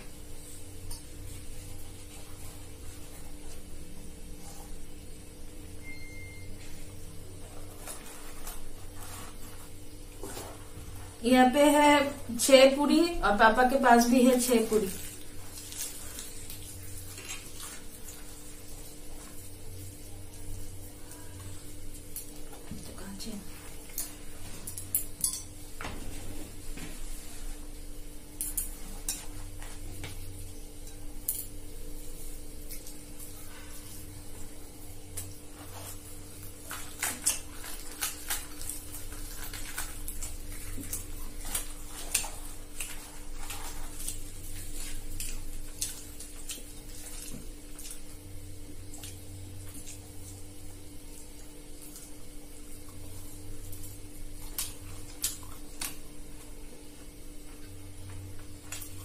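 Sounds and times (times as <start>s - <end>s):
bread tearing and chewing: 15.0s - 22.6s, 32.4s - 56.7s.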